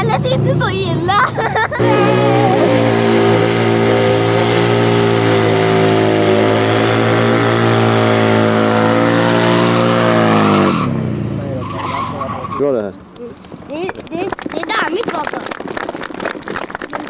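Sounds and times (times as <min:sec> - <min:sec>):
motorcycle engine revving high: 0:01.6 - 0:12.9.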